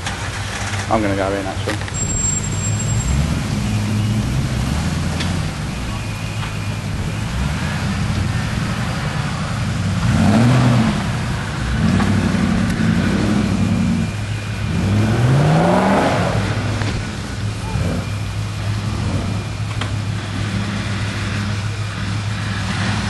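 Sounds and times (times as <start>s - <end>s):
off-road vehicle engine revving: 0.0s - 23.0s.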